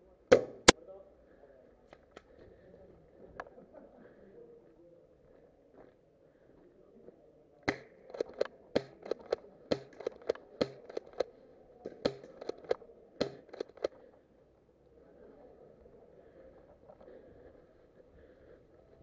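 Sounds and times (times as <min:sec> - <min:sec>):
airsoft guns firing: 0:00.3 - 0:00.8, 0:07.7 - 0:11.3, 0:11.9 - 0:14.0.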